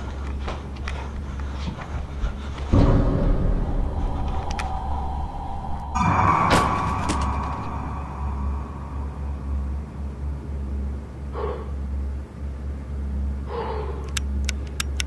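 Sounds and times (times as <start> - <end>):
low rumble: 2.0 - 12.3
sharp clicks: 14.0 - 15.0.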